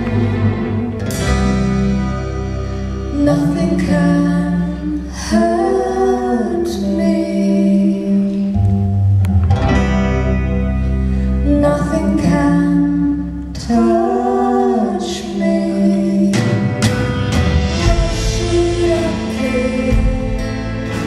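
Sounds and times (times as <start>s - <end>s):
rock band playing slow song: 0.0s - 21.0s
woman singing: 3.1s - 8.6s, 11.4s - 16.9s, 17.7s - 21.0s
man singing: 17.6s - 21.0s.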